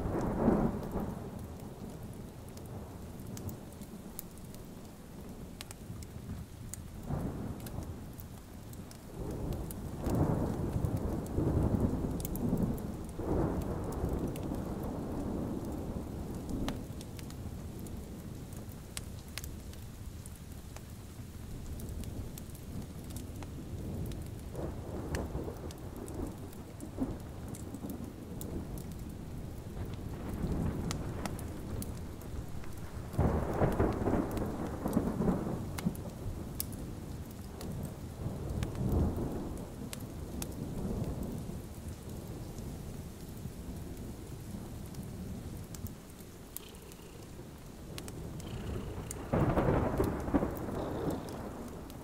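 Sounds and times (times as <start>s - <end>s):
steady rain: 0.0s - 52.0s
rolling thunder: 9.2s - 18.3s, 23.8s - 36.6s, 47.8s - 52.0s.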